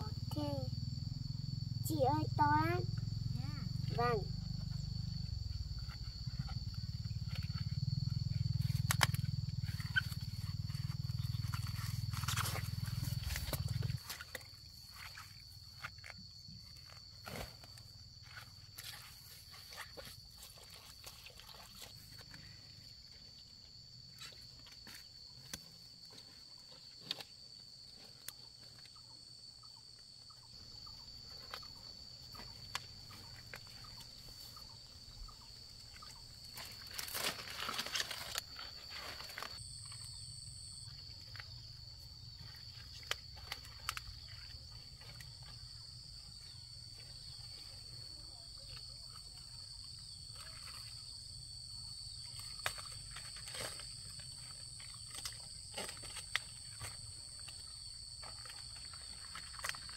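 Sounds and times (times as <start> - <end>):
high insect drone: 0.0 - 59.9
stiff leaves rustling and snapping: 36.5 - 39.6.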